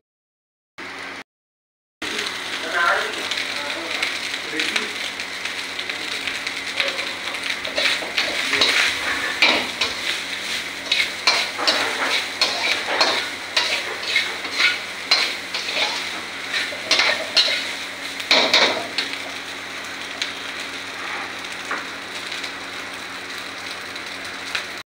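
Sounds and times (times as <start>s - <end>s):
rice sizzling in a wok: 2.0s - 24.8s
spatula scraping and knocking pan: 7.6s - 19.1s.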